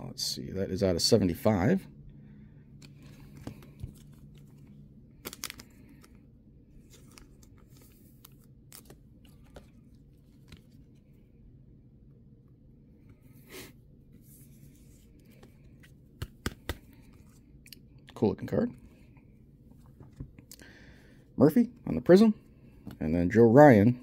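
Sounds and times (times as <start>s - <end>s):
handling trading cards and plastic: 2.7s - 11.2s, 14.2s - 18.2s.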